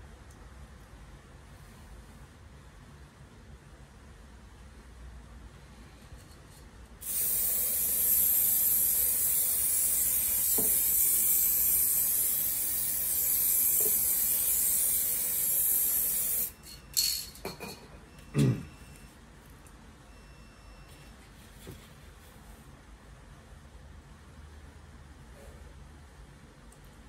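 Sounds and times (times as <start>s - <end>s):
aerosol can spraying: 7.0s - 16.5s.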